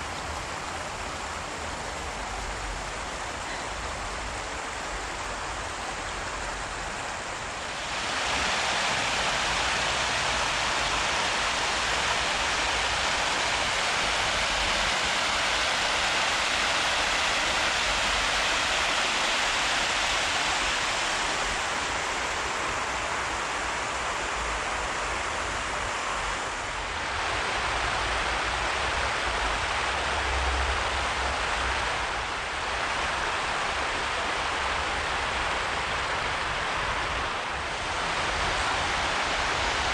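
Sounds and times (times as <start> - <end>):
water rushing across grass: 0.0 - 39.9.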